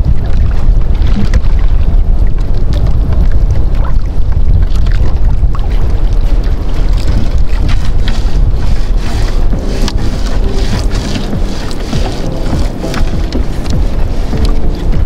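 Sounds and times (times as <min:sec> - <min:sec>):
splashes and drips: 0:00.0 - 0:15.0
water sloshing around boat: 0:00.0 - 0:15.0
wind rumbling on microphone: 0:00.0 - 0:15.0.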